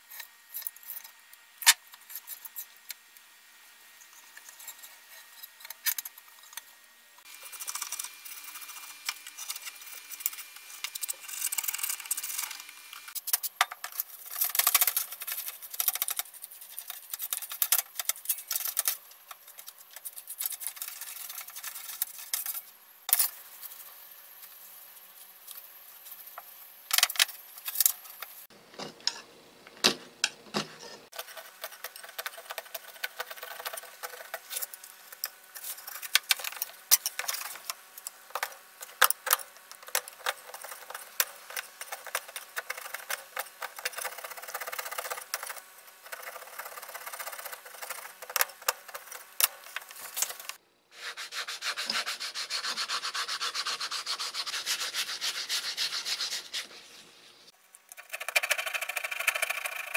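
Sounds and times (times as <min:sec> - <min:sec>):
metal scraper scraping coating: 0:07.2 - 0:23.8, 0:30.7 - 0:37.7, 0:38.4 - 0:56.7
sandpaper rubbing: 0:07.3 - 0:22.7, 0:40.1 - 0:57.0.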